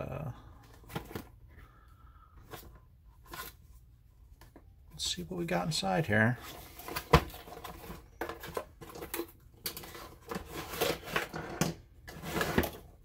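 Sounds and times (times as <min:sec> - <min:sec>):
cardboard packaging rustling: 0:06.4 - 0:13.0.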